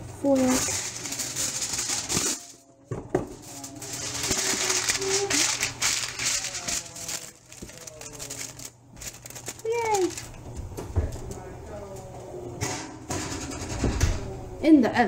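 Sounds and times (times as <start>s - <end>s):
aluminum foil crinkling: 0.2s - 2.6s, 3.3s - 10.5s.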